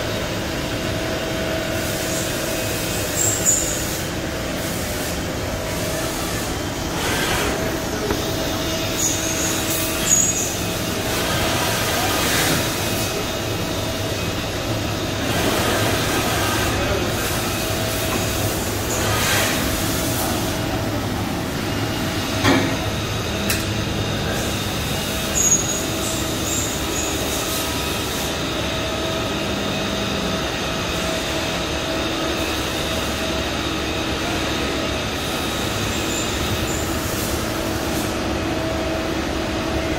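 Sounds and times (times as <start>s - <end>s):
machine mechanical hum: 0.0s - 39.9s
brief high squeals: 9.0s - 10.6s.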